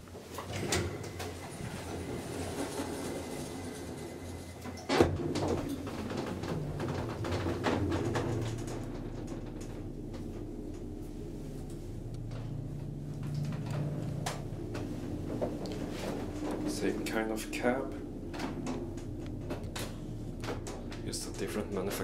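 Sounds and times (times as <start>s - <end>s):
elevator low hum: 0.0s - 22.0s
elevator clicks and knocks: 0.4s - 11.0s.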